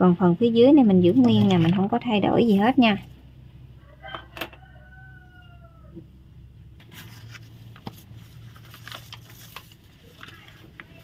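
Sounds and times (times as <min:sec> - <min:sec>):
paper crackling and rustling: 0:06.8 - 0:11.0.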